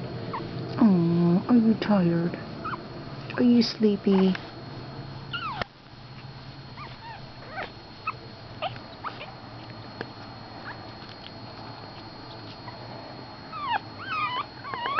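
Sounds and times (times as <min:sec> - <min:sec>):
puppies whimpering: 0:02.6 - 0:02.8, 0:05.3 - 0:09.7, 0:13.5 - 0:14.9.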